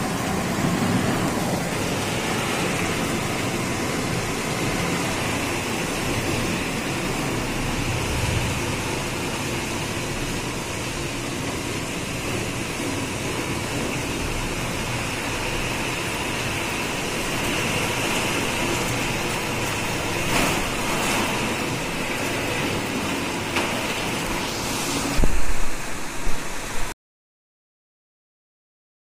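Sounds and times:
heavy rain pouring: 0.0 - 27.0
loud low thumps: 7.6 - 9.4.

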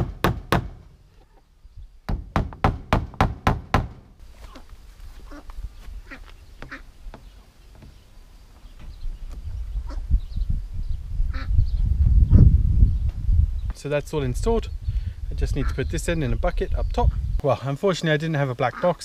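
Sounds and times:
ducks quacking: 5.2 - 6.9, 11.3 - 11.5, 18.0 - 19.0.

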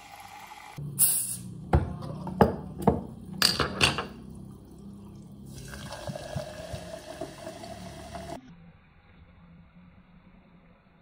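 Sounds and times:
sparkling water pouring and fizzing: 4.2 - 8.4.

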